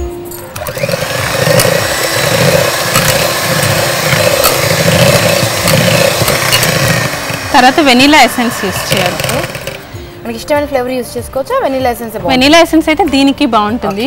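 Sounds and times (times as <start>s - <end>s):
electric hand mixer running: 0.5s - 10.2s
beaters clicking against bowl: 0.6s - 7.4s.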